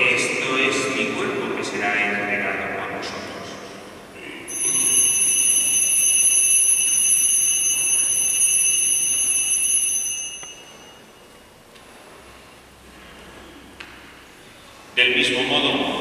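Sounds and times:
altar bells ringing: 4.5s - 11.6s.

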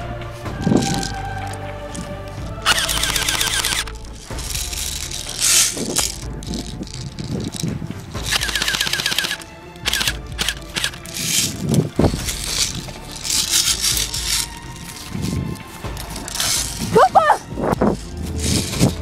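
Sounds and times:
toy gun automatic fire: 2.7s - 4.0s, 8.3s - 11.5s.

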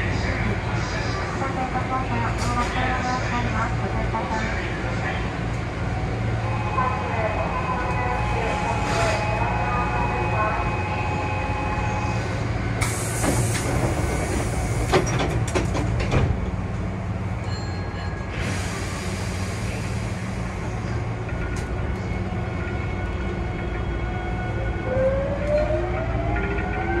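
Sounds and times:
train low hum: 0.0s - 27.0s
air hiss burst: 12.8s - 13.7s.

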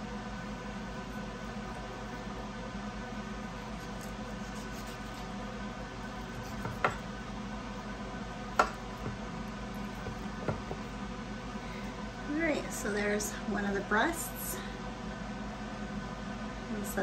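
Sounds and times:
steady hum: 0.0s - 17.0s
knife knocking on cutting board: 6.6s - 7.0s, 10.0s - 10.8s.

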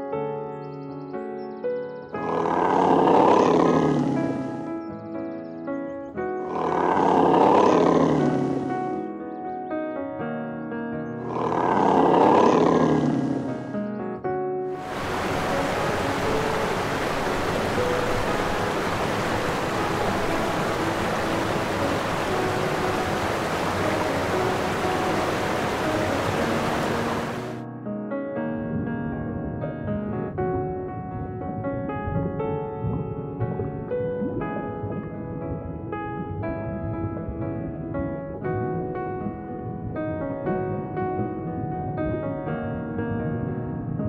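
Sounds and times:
soft piano music: 0.0s - 44.0s
rough animal roars: 2.2s - 4.6s, 6.4s - 9.0s, 11.2s - 13.7s, 18.3s - 27.6s
rushing water: 2.2s - 4.7s, 6.5s - 9.1s, 11.3s - 13.5s, 14.7s - 27.6s, 32.0s - 37.9s
faint sustained music notes: 13.1s - 27.6s.

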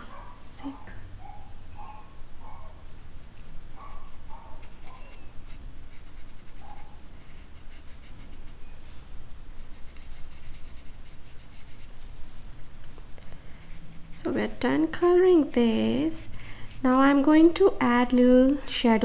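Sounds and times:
low steady hum: 0.0s - 19.0s
paintbrush scratching on paper: 2.8s - 12.6s.

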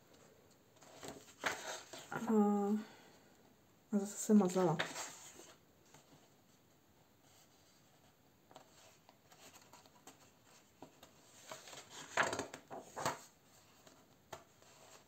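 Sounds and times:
page turning: 0.8s - 2.1s, 4.4s - 6.2s, 8.5s - 15.0s
paper rustling: 0.8s - 2.2s, 4.4s - 6.3s, 8.5s - 15.0s.

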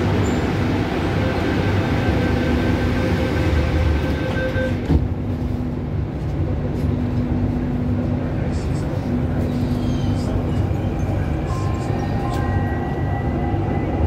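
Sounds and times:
train car hum: 0.0s - 14.0s
train doors shutting with knock: 4.1s - 5.2s.

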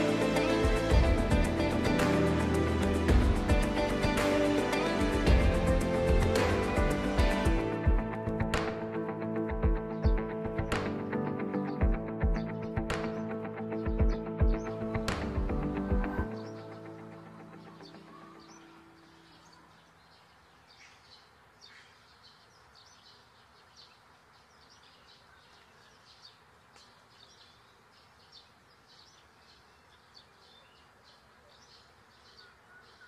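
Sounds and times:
background music: 0.0s - 19.4s.

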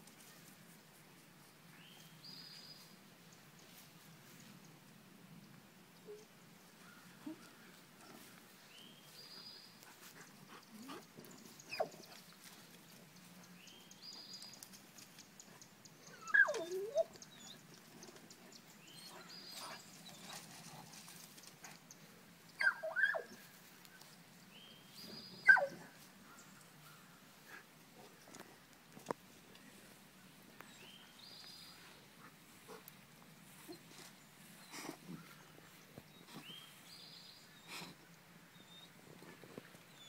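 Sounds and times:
dogs whining: 16.0s - 17.6s, 22.6s - 23.4s, 25.4s - 25.9s.

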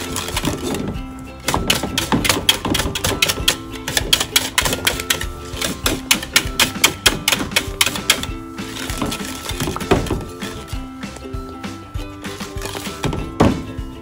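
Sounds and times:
whisk clacking against pot: 0.0s - 10.8s
background music: 0.0s - 14.0s.

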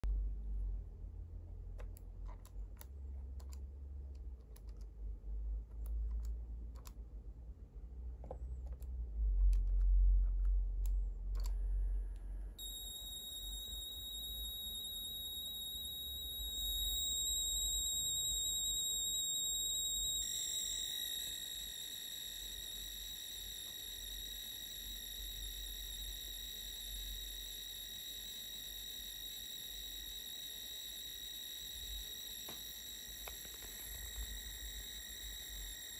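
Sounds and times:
computer keys clicking: 1.8s - 5.0s, 5.6s - 7.0s
low rumble: 8.9s - 12.6s
high-pitched data tone: 12.6s - 35.9s.

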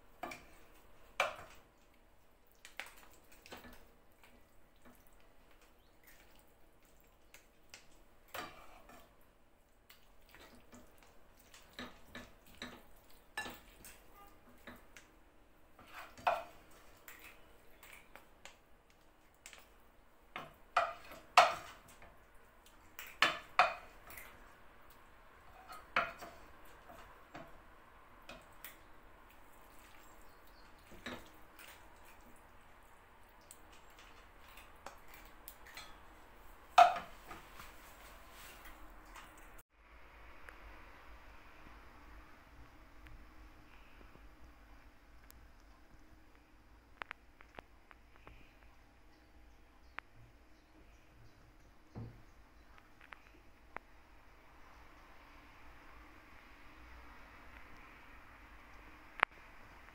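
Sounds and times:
utensils clinking on pan and plate: 13.4s - 14.8s, 20.4s - 22.1s, 36.8s - 37.4s.

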